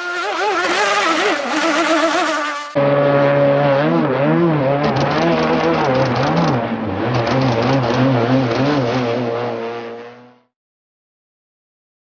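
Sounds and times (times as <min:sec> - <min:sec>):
model boat engine buzzing: 0:00.0 - 0:04.6.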